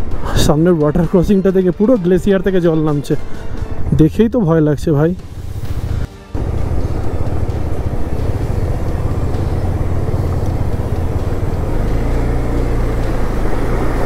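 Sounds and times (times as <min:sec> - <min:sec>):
wind: 0:00.0 - 0:14.0
motorcycle engine running: 0:05.2 - 0:14.0.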